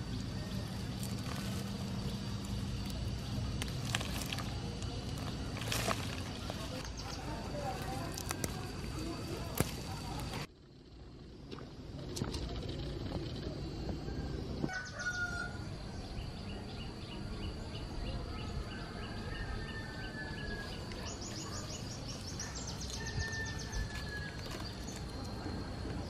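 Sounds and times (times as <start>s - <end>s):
high insect drone: 0.0s - 26.0s
rooster crowing: 14.7s - 15.7s, 18.9s - 20.9s, 22.8s - 24.4s
bird calls: 18.4s - 25.3s.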